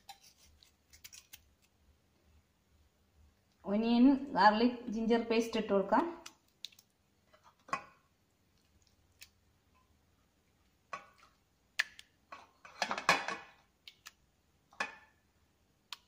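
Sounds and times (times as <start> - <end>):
spoon scraping a steel bowl: 0.0 - 1.3.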